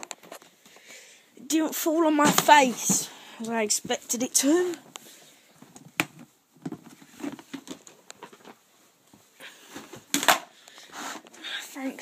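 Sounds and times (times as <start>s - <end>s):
plastic box knocks and rattles: 2.2s - 3.1s.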